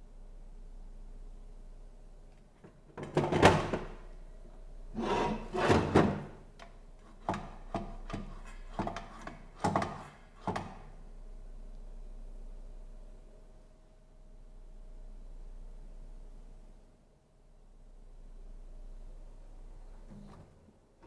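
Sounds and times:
saw base plate scraping: 5.0 - 6.1.

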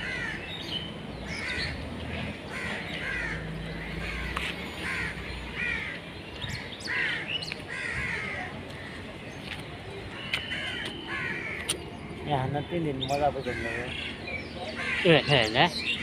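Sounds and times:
crows cawing: 0.0 - 0.6, 1.3 - 9.1, 10.1 - 11.8, 13.1 - 15.6
low traffic rumble: 0.0 - 16.0.

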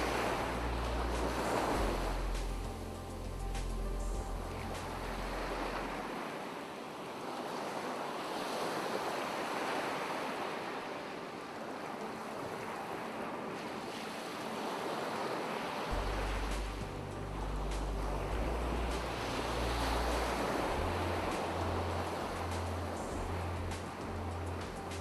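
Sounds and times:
low background drone: 0.0 - 6.1, 15.9 - 25.0
ocean waves breaking on shore: 0.0 - 25.0.

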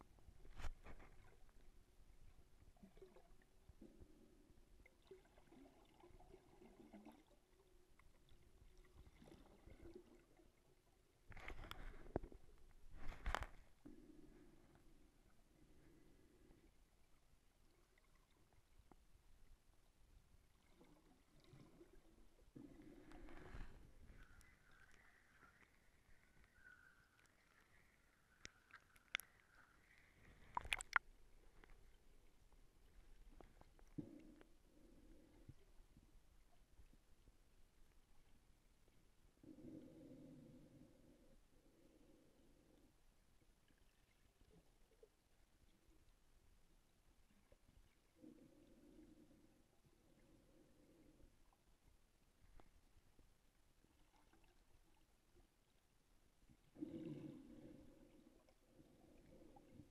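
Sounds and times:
faint underwater crackle and ticks: 0.0 - 59.9
bubbling and splashing: 2.7 - 10.8, 20.5 - 31.8
muffled underwater hiss: 20.8 - 36.5.

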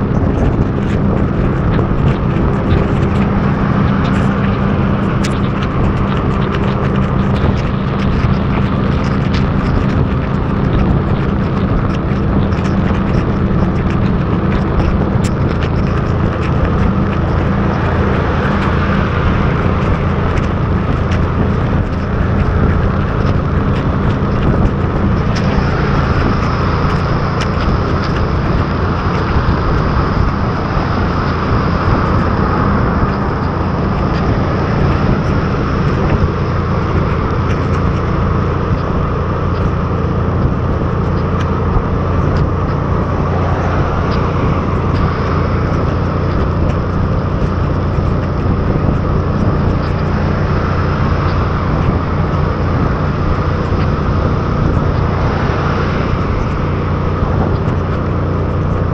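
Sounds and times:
heavy rain: 0.0 - 47.1
scooter engine drone: 0.0 - 58.9
wind rushing: 0.0 - 58.9
tyres hissing on wet road: 42.8 - 47.8, 54.8 - 57.2.

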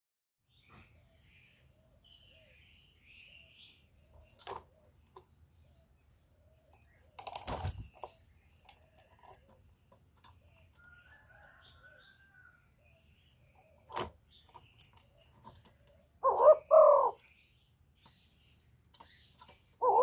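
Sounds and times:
small birds chirping: 0.5 - 20.0
wings fluttering: 7.1 - 8.1.

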